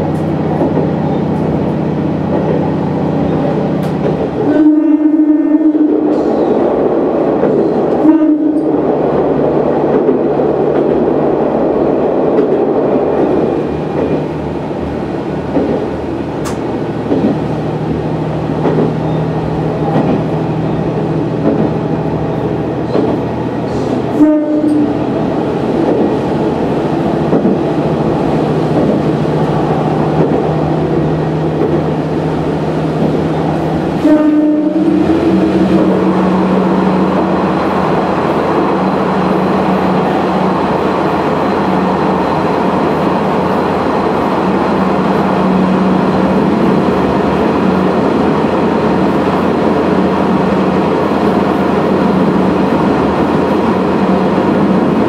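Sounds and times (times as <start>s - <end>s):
diesel railcar engine drone: 0.0s - 55.0s
train horn blasts: 4.4s - 6.4s, 7.9s - 8.8s, 24.1s - 25.0s, 34.0s - 35.8s.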